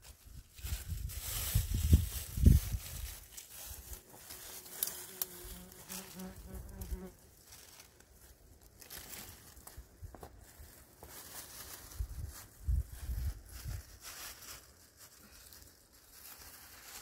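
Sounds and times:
insect buzzing: 4.7 - 7.2.

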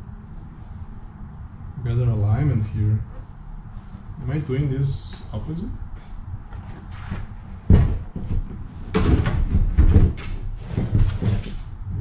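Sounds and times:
knocks and rattles: 6.6 - 11.7
plastic bumper thump: 7.6 - 11.6.

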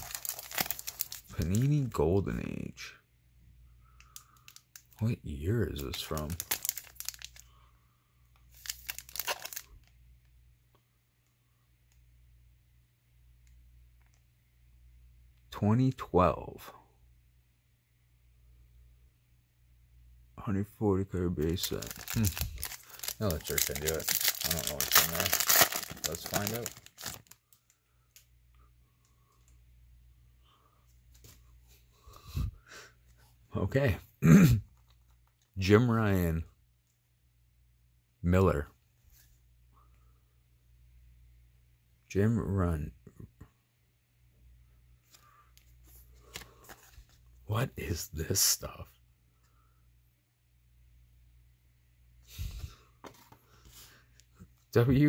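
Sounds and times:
foil wrapper tearing and crinkling: 0.0 - 1.7, 5.9 - 7.4, 8.5 - 9.8, 21.5 - 27.4
trading cards rustling: 0.0 - 2.0, 5.7 - 7.4, 8.5 - 9.8, 21.4 - 27.7, 45.0 - 47.3.

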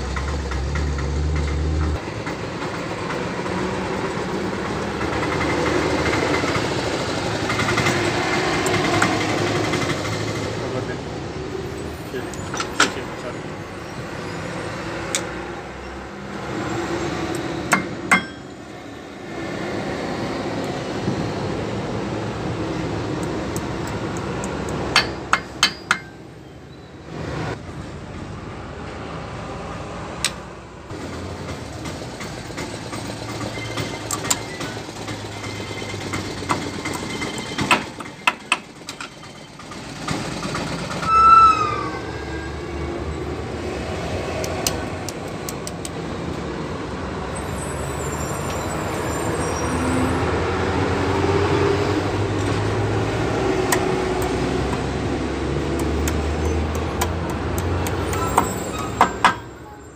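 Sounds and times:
short falling squeal: 41.0 - 42.9, 47.4 - 50.4, 58.2 - 59.2
metal pick clicking on bearing: 44.4 - 46.0, 55.7 - 58.4.

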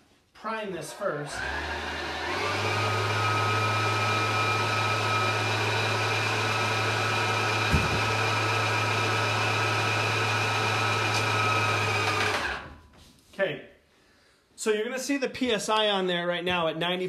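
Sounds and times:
paint sprayer pump humming: 1.4 - 12.7
single knock: 7.7 - 8.1.

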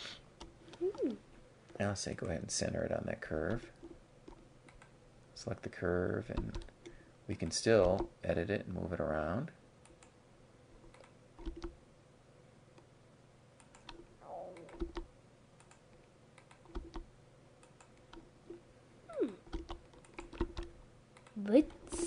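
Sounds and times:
computer keyboard keystrokes: 4.3 - 4.9, 6.3 - 7.0, 7.8 - 8.1, 10.8 - 11.8, 13.6 - 14.0, 14.6 - 15.8, 16.4 - 18.2, 19.5 - 21.4.

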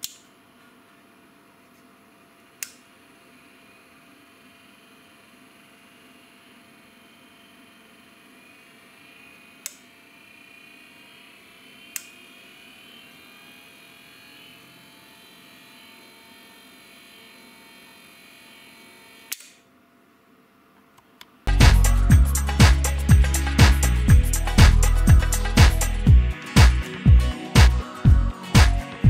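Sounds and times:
electric motor humming with whine: 6.8 - 19.3.

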